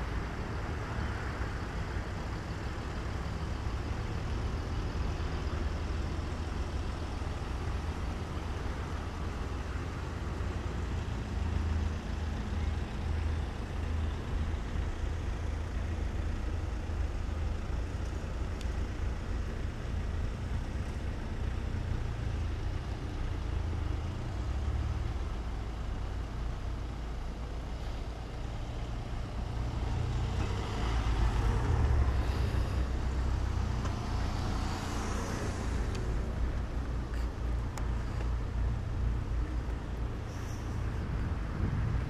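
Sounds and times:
cars driving by: 0:00.0 - 0:42.0.

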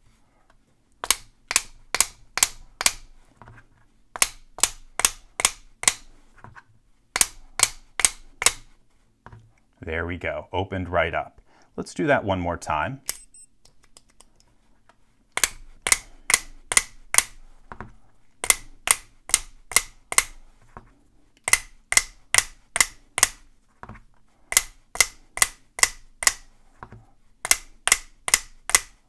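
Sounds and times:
magnet clicking on padlock: 0:24.5 - 0:26.4.

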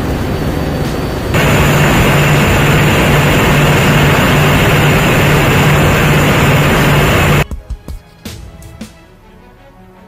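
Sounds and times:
boat diesel engines droning: 0:00.0 - 0:07.4
rush of wake water and wind: 0:01.4 - 0:07.4.

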